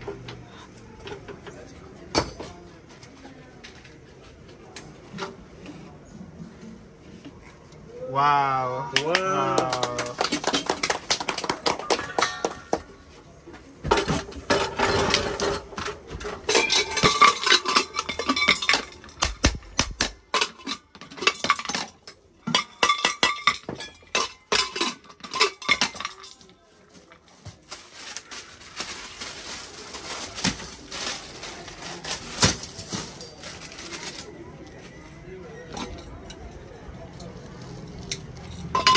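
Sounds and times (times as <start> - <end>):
metal pot and lid clinking: 14.0 - 19.3, 20.3 - 26.4, 38.6 - 38.9.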